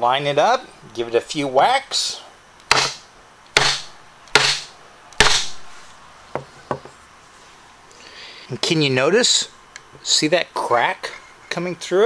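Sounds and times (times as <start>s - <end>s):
mallet striking chisel: 2.7s - 3.0s, 3.6s - 5.6s.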